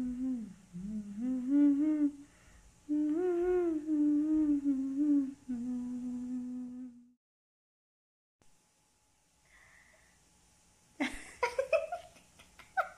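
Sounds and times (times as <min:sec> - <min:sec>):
person humming a tune: 0:00.0 - 0:02.3, 0:02.9 - 0:07.2.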